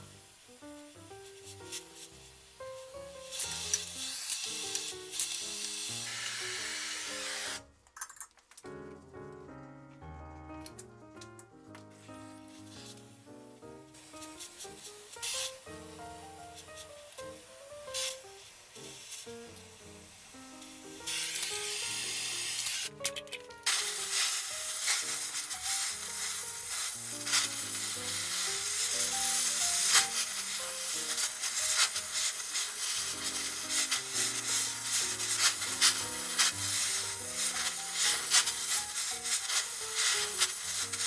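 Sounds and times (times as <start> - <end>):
torch flame hissing and crackling: 0.0 - 7.8, 12.0 - 23.0, 23.6 - 41.0.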